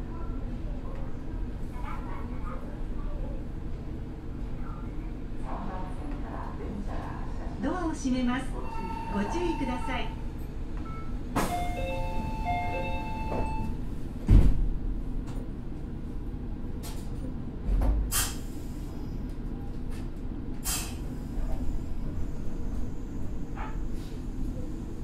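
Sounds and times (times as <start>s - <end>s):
train doors shutting thump: 11.3s - 14.8s.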